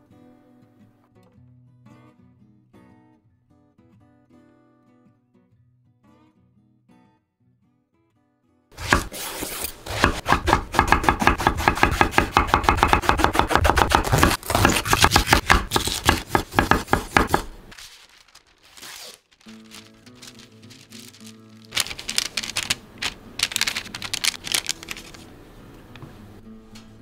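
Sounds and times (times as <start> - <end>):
knife slicing on wooden board: 8.8 - 17.7
baking paper rustling: 8.8 - 25.3
light music: 19.4 - 27.0.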